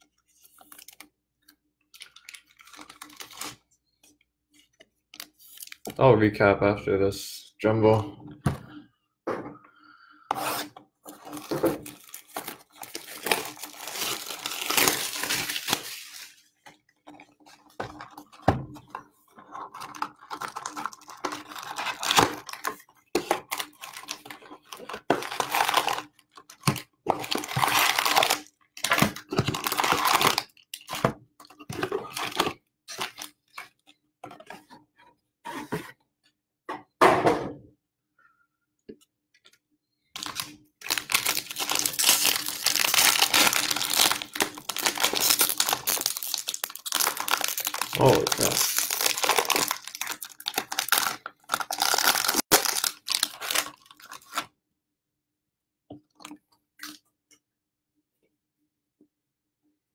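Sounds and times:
card pack wrapper crinkling: 1.9 - 3.6, 5.2 - 5.9, 11.1 - 16.4, 19.5 - 33.7, 40.2 - 54.5
cards rustling: 40.2 - 54.4.

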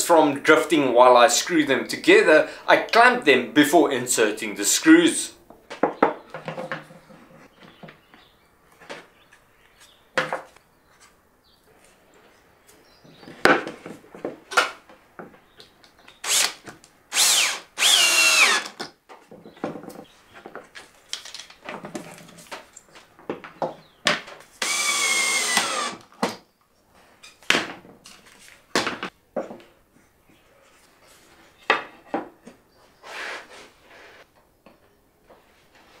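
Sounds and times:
boards and clamps being handled: 5.5 - 11.2, 11.8 - 17.0, 18.4 - 24.8, 25.6 - 29.8, 30.6 - 32.7
power drill driving screws: 16.2 - 18.8, 24.6 - 26.1.

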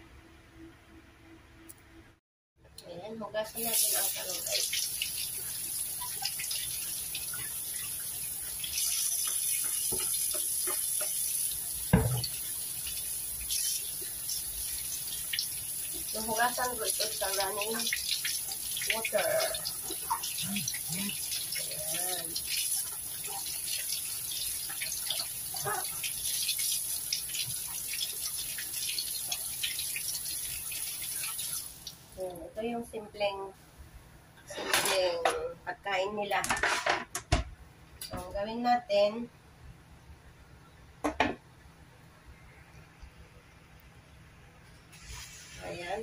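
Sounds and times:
faucet running into sink: 3.6 - 32.0
tap water splashing on vegetables: 3.6 - 32.0
thump: 11.9 - 12.3.

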